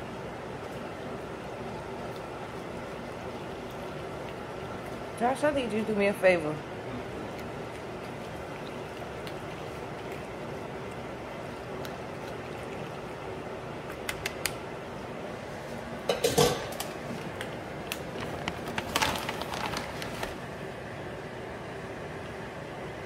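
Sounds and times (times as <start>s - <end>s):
background hum: 0.0s - 23.0s
spoon clattering on foil pan: 16.1s - 16.8s.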